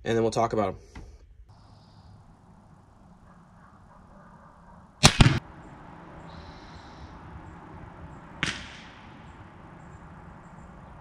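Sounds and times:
faint rifle bang with ringing tail: 0:05.0 - 0:05.4, 0:08.4 - 0:09.4
sharp double crack of bullet: 0:05.0 - 0:05.4, 0:08.4 - 0:09.2.

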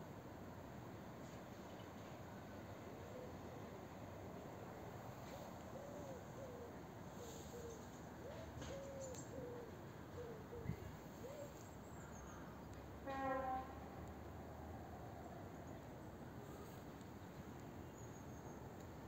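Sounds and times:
pigeon cooing: 0:05.8 - 0:11.5.

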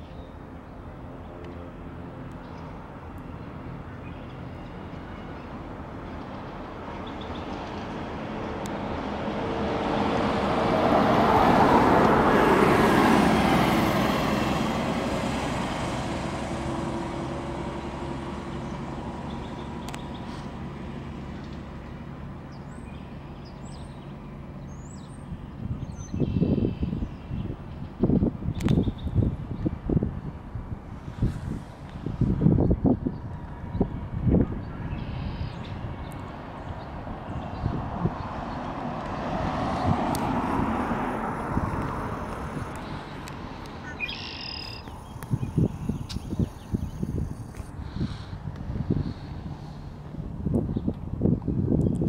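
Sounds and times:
car driving past: 0:07.8 - 0:22.2, 0:35.1 - 0:50.4
faint bird chirps: 0:43.8 - 0:47.0.

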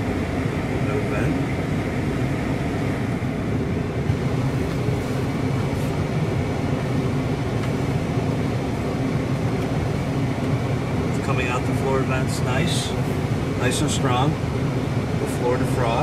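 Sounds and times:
car blower air rushing: 0:00.0 - 0:16.0
car engine idling: 0:00.0 - 0:16.0.

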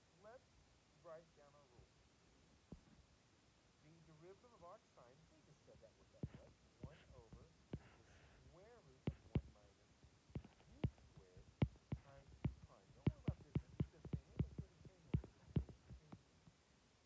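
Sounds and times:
stylus tapping on glass screen: 0:09.1 - 0:09.6, 0:10.4 - 0:16.1.

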